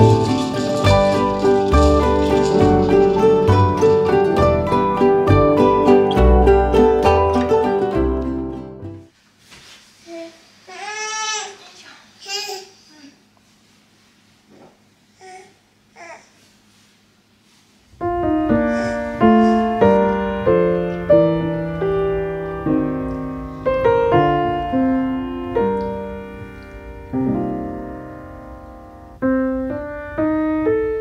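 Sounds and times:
slow piano melody: 0.0s - 9.1s, 17.9s - 31.0s.

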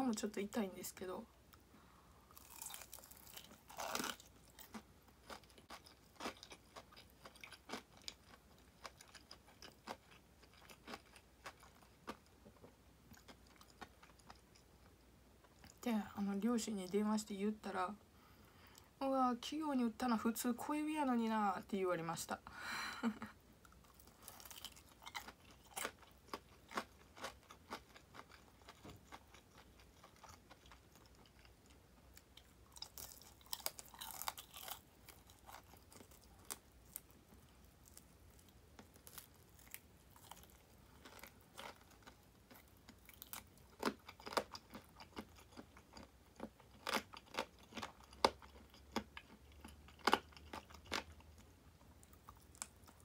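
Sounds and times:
crunching fried chicken: 2.3s - 12.3s, 23.8s - 53.0s.

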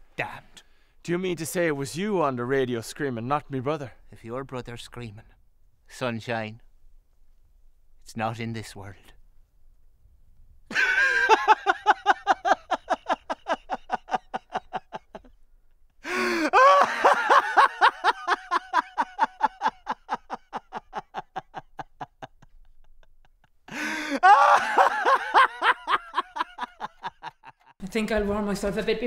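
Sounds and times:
man laughing loudly: 10.7s - 15.4s, 16.1s - 27.7s.

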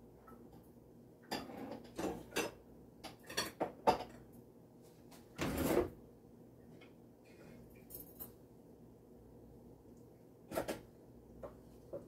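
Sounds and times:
dishes and utensils clinking: 1.2s - 4.3s.

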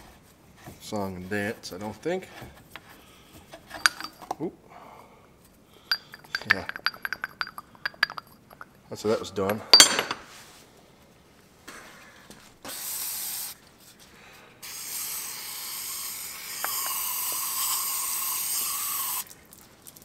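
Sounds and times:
aerosol can spraying: 14.6s - 19.3s.

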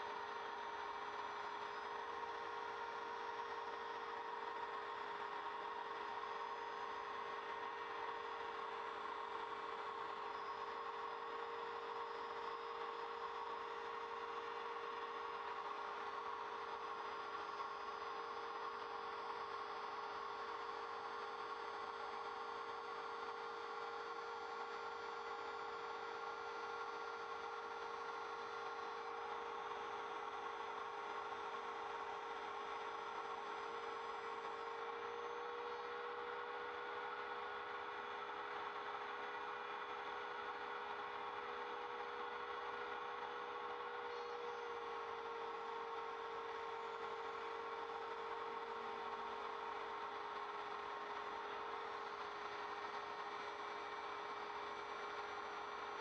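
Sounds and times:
router spindle whining: 40.2s - 55.6s.

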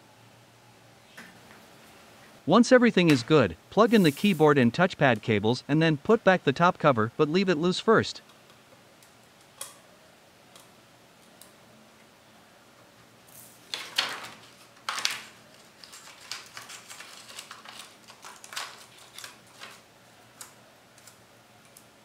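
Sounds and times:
scraping rustles of plastic: 13.7s - 19.8s.

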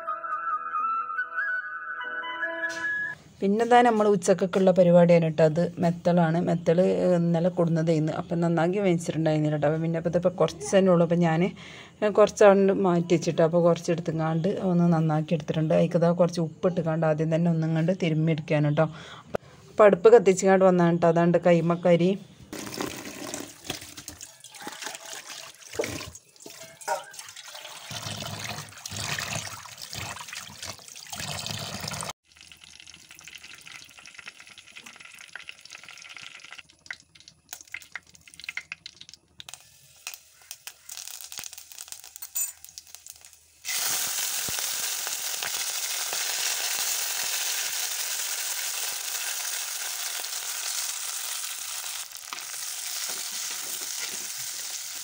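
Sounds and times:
water splashing in basin: 22.6s - 39.5s
onions sizzling in oil: 39.5s - 55.0s.

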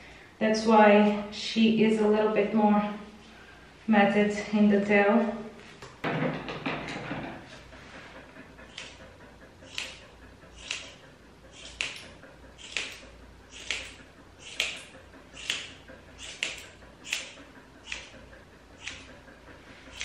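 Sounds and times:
scissors snipping hair: 9.7s - 10.0s, 10.6s - 18.1s, 18.8s - 19.1s.

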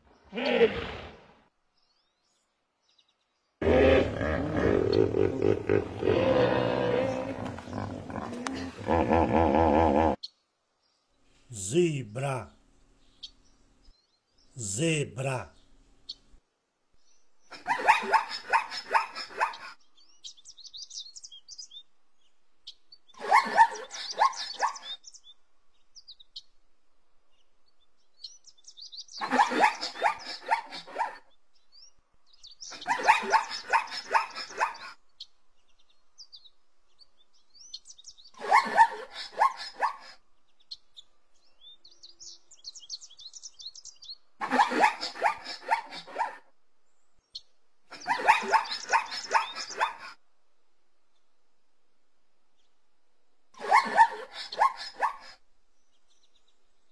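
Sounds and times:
zebra barking brays: 3.6s - 10.2s, 29.2s - 31.3s, 32.7s - 35.0s, 47.9s - 50.1s
faint bird chirps: 17.0s - 26.6s, 27.3s - 50.2s.

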